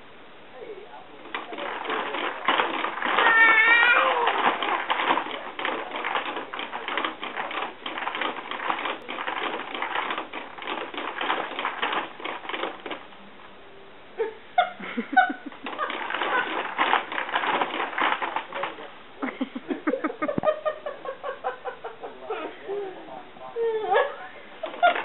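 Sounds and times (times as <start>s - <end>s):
baby jumper creaking and rattling: 1.2s - 13.2s, 15.2s - 18.9s, 23.9s - 25.0s.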